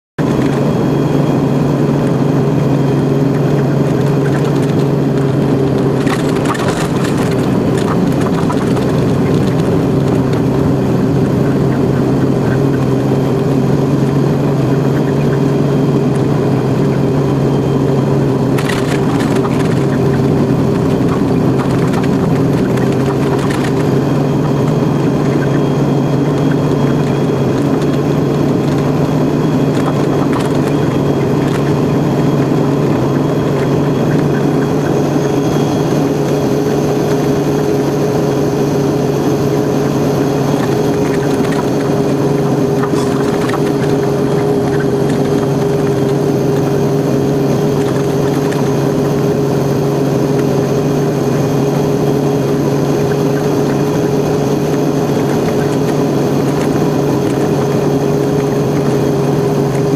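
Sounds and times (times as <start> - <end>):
truck engine drone: 0.0 - 59.9
crackling bursts: 2.8 - 37.8, 39.6 - 59.9.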